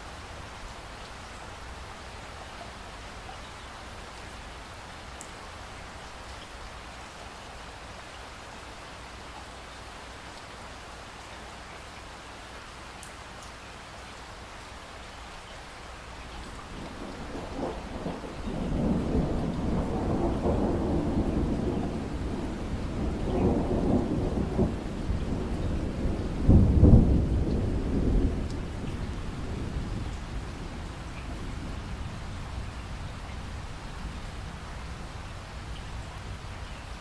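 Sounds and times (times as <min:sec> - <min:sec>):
steady rainfall: 0:00.0 - 0:37.0
rolling thunder: 0:16.6 - 0:32.8.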